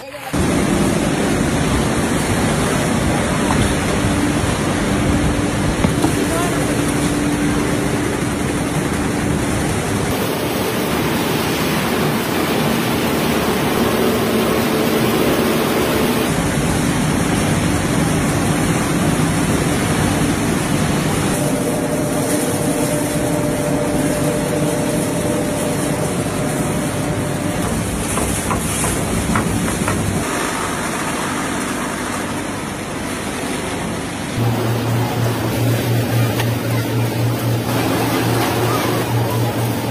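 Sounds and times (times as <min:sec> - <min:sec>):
factory machinery running: 0:00.0 - 0:39.9.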